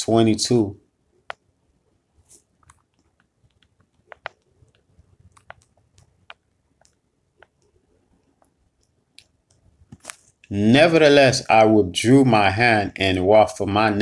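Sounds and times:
faint small clicks and ticks: 2.4s - 10.5s.

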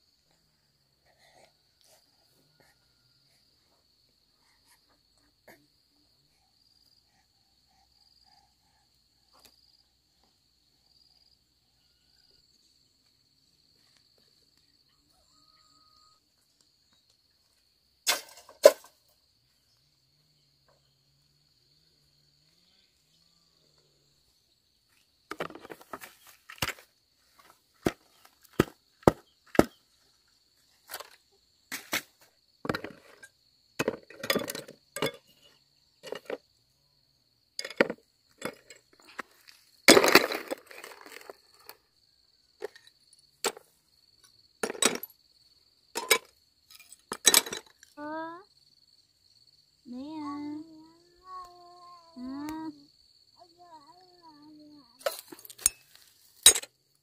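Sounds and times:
crickets droning: 0.0s - 57.0s.

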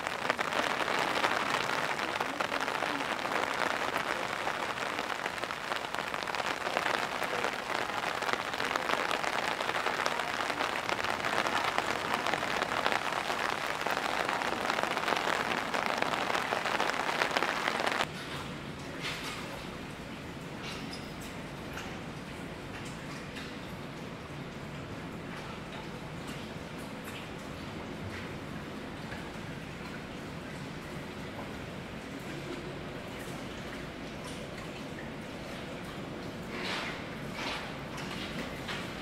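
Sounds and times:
heavy pouring rain: 0.0s - 18.1s.

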